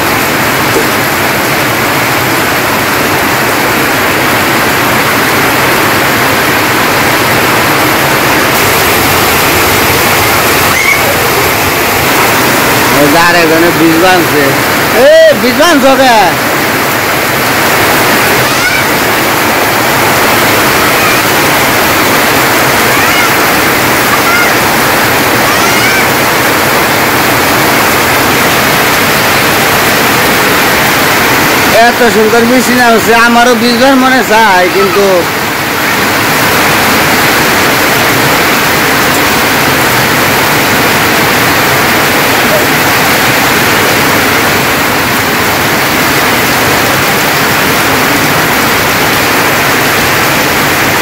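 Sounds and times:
heavy rain on tin roofs: 0.0 - 51.0
rain falling into water: 0.0 - 51.0.

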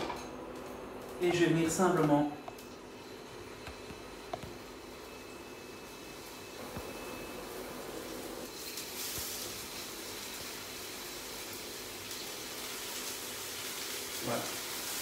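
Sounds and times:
scallops sizzling in oil: 5.0 - 15.0.

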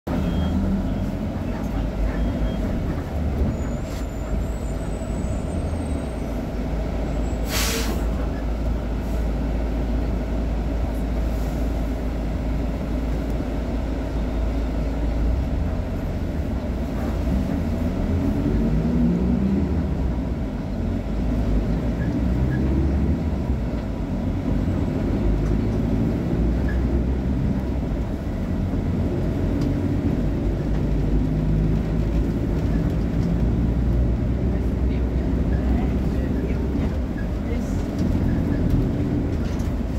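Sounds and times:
bus diesel engine idling: 0.1 - 39.9
air brake hiss: 7.3 - 8.2.

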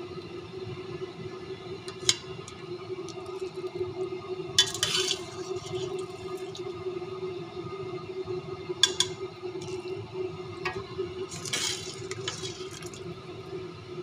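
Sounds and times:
steady hum: 0.0 - 14.0
ladle stirring squelching stew: 4.6 - 6.6, 10.7 - 13.0
ladle clinking on steel pot: 8.8 - 9.8.

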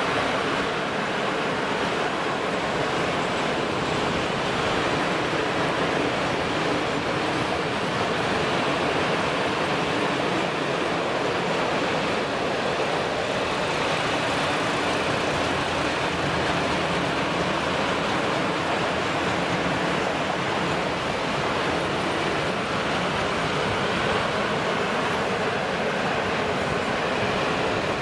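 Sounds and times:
train wheels rolling on rail: 0.0 - 28.0.

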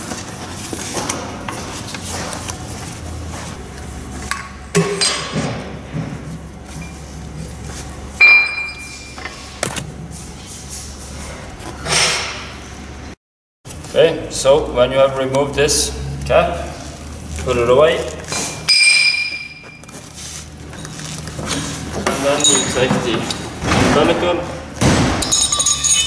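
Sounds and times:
metallic clinks and knocks: 25.2 - 26.0.

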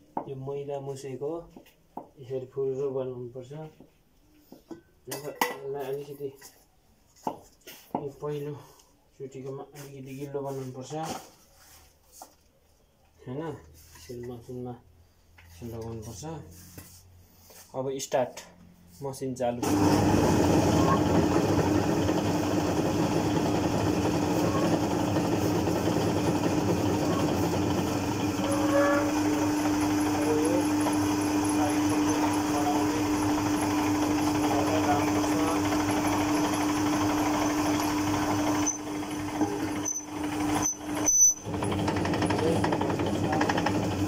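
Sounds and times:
noodle machine motor humming: 19.6 - 44.0.

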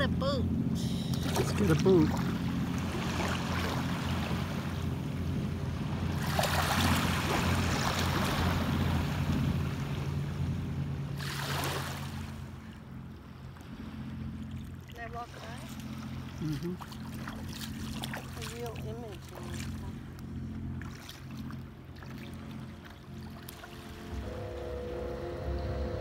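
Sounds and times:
boat engine droning: 0.0 - 26.0
small waves washing at shore: 0.7 - 12.8, 13.4 - 25.8
rushes of noise: 23.9 - 26.0.

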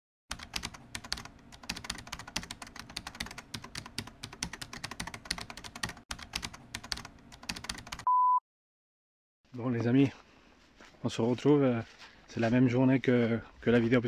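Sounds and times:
computer keyboard typing: 0.3 - 8.1.

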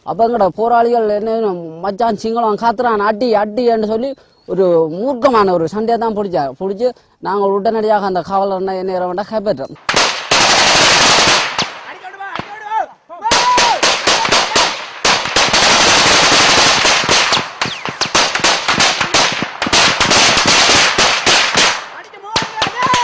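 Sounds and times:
automatic gunfire bursts: 9.8 - 11.9, 13.3 - 23.0.

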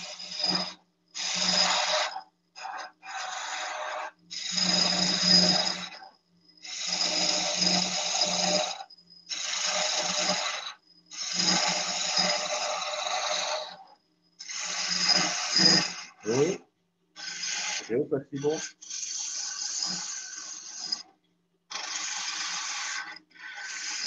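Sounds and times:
gouge cutting wood on lathe: 0.0 - 6.0, 6.6 - 16.6, 17.2 - 21.1, 21.7 - 24.0
workpiece chatter: 0.0 - 6.0, 6.6 - 16.6, 17.2 - 21.1, 21.7 - 24.0
lathe humming: 6.6 - 8.8, 9.4 - 13.8, 14.5 - 16.6, 17.2 - 21.0.

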